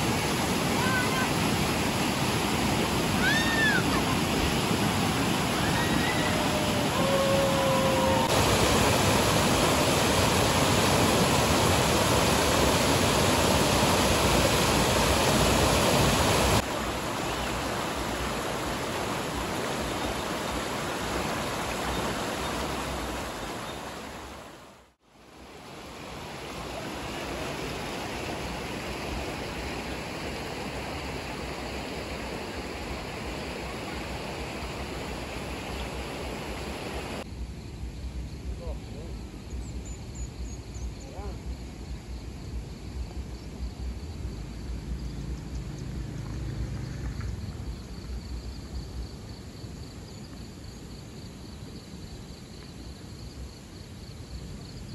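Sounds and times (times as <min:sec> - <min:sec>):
rushing river water: 0:00.0 - 0:37.3.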